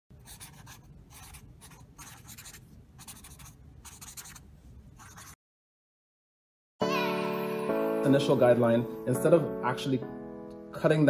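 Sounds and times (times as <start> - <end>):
pen writing on paper: 0.2 - 4.4, 5.0 - 5.4.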